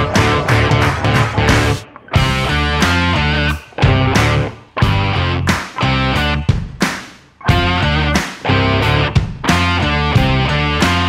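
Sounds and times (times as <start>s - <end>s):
electric guitar stop-start chords: 0.0s - 6.6s, 7.4s - 11.0s
rock music: 0.0s - 11.0s.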